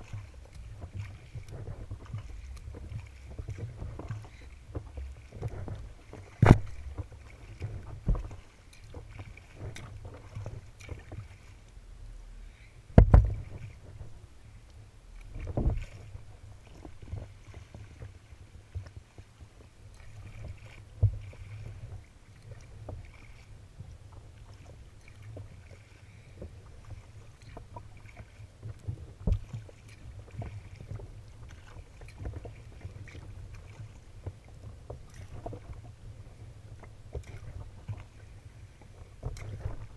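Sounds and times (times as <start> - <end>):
water slapping against kayak hull: 0.0 - 11.8, 12.9 - 39.9
steady low rumble: 0.0 - 17.5.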